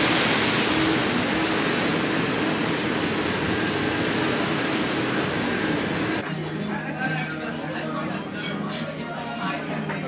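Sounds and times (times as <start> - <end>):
waterfall rushing into pool: 0.0 - 6.2.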